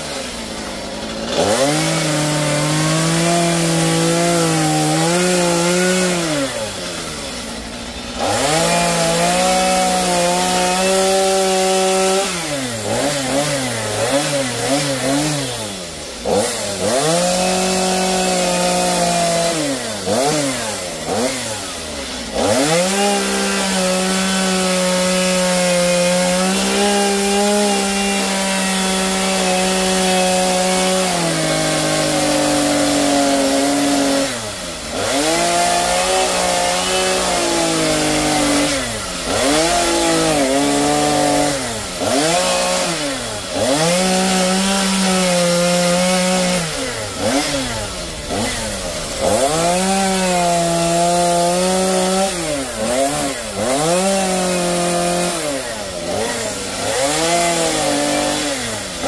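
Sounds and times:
chainsaw cutting log: 0:00.0 - 0:59.0.

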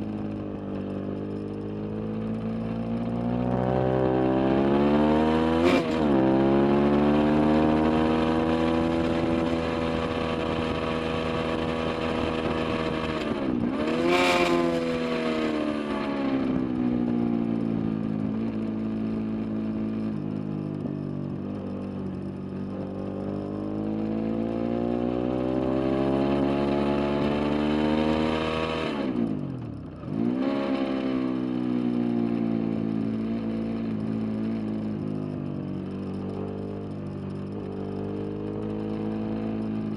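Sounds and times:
motorcycle engine revving high: 0:02.1 - 0:17.0, 0:22.8 - 0:34.1.

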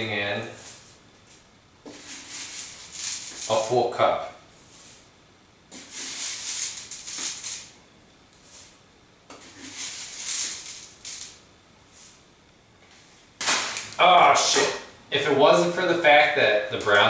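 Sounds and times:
scooping dry oats: 0:01.9 - 0:03.8, 0:05.7 - 0:07.7, 0:09.4 - 0:11.3
oats pouring into bowl: 0:05.8 - 0:07.7, 0:09.4 - 0:12.0.

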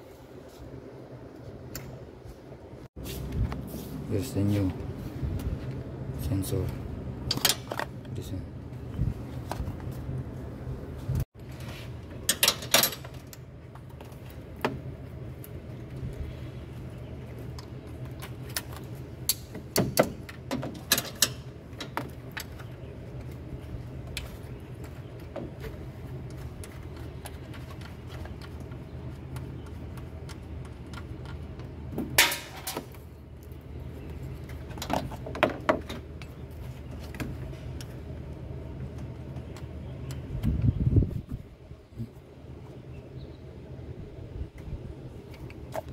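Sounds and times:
steady low hum: 0:00.0 - 0:45.9
metal tools clinking and scraping: 0:12.2 - 0:13.3.

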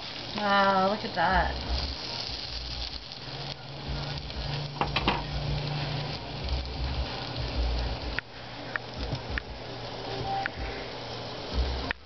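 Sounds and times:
bread sizzling in a frying pan: 0:00.0 - 0:12.0.

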